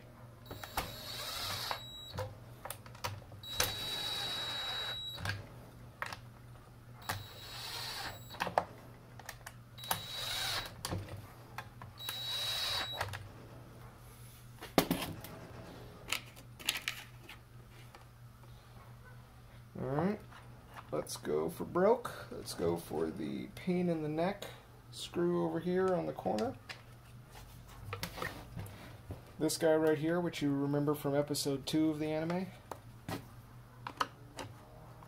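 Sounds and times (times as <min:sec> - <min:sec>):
drill motor whine: 0:00.5 - 0:02.2, 0:03.4 - 0:05.3, 0:07.0 - 0:08.4, 0:09.8 - 0:10.8, 0:12.0 - 0:13.1.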